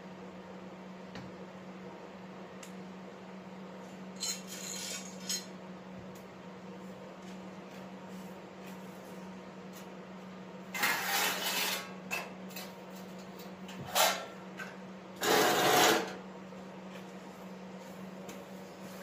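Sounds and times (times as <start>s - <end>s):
metal scraping across concrete: 10.8s - 11.9s, 15.2s - 16.2s.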